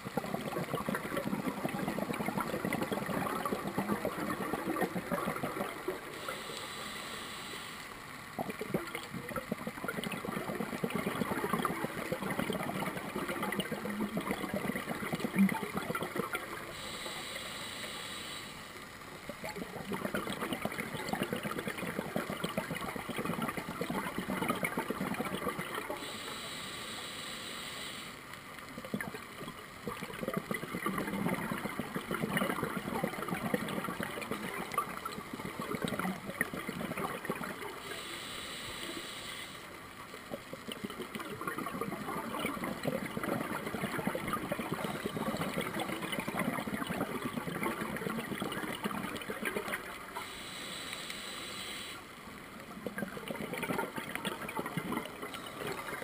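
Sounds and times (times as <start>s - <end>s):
bubbling exhalations underwater: 0.0s - 6.4s, 8.4s - 16.9s, 19.2s - 26.1s, 28.7s - 38.1s, 40.2s - 50.3s, 52.7s - 56.0s
regulator inhalation hiss: 6.1s - 7.9s, 16.7s - 18.7s, 26.0s - 28.2s, 37.8s - 39.8s, 50.2s - 52.1s.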